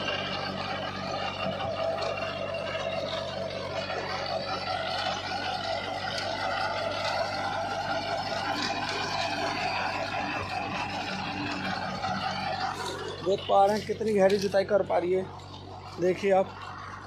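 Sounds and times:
rotary weeder tilling soil: 0.0 - 17.0
tractor engine under load: 0.0 - 17.0.

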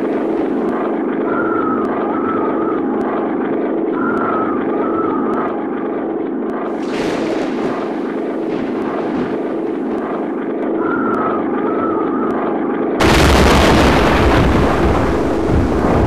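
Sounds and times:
earthquake rumble: 6.7 - 10.3, 13.0 - 16.0.

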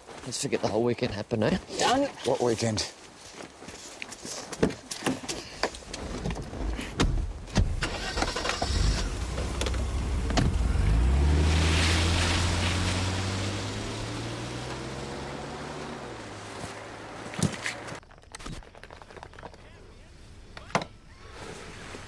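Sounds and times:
car engine starting and running: 7.6 - 18.0.

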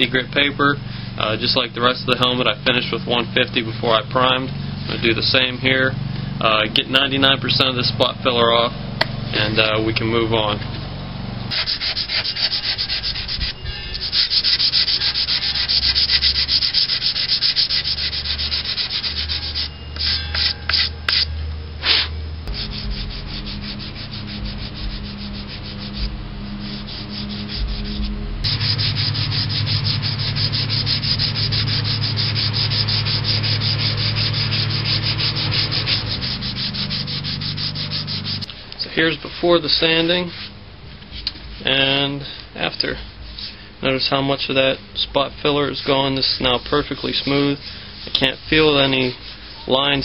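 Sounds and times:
hand sanding with sandpaper: 11.5 - 42.0, 45.2 - 50.0.

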